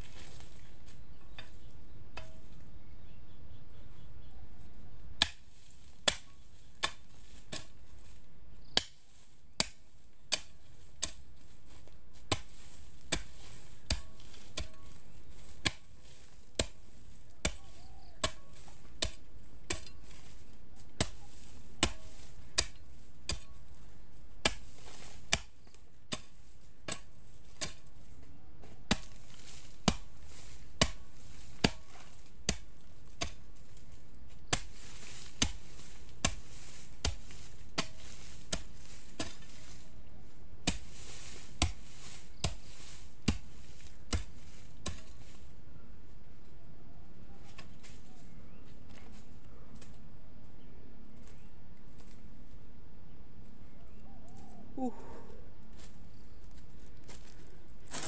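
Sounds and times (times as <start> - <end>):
hoe chopping into dry soil: 0.0 - 2.6, 5.2 - 45.6.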